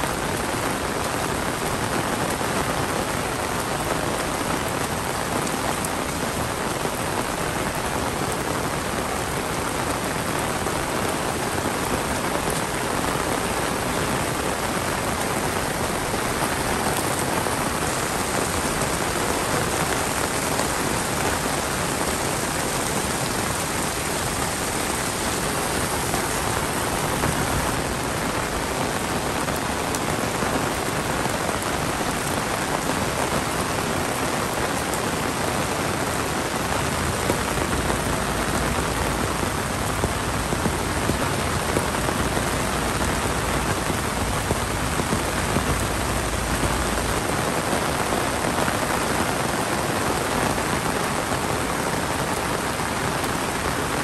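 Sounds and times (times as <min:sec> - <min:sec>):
heavy rain: 0:00.0 - 0:54.0.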